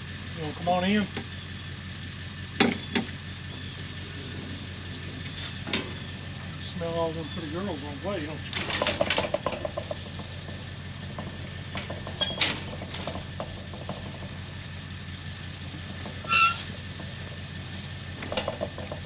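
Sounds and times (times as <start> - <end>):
steel panels rattling and knocking: 4.9 - 19.0
ringing metal clank: 11.8 - 12.7, 15.8 - 17.2.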